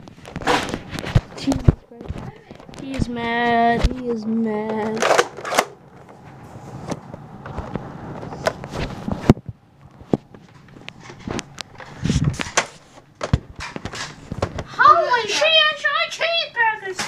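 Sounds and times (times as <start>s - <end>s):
toy blaster clicks and knocks: 4.7s - 5.8s.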